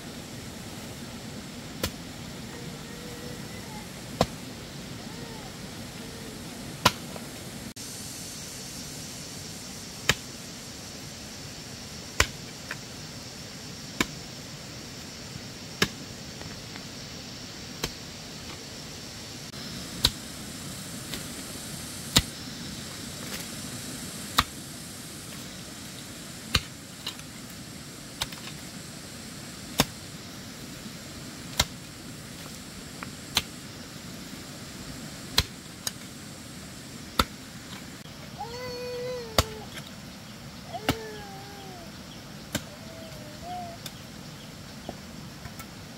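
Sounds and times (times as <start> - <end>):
hoe chopping into soil: 12.2 - 12.4.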